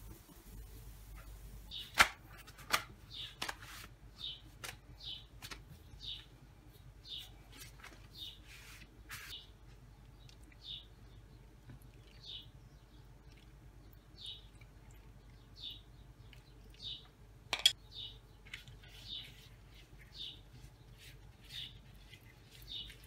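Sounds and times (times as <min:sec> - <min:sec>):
pastry sheets crackling and rustling: 0:00.0 - 0:09.8, 0:18.3 - 0:23.0
bird chirping: 0:09.3 - 0:23.0.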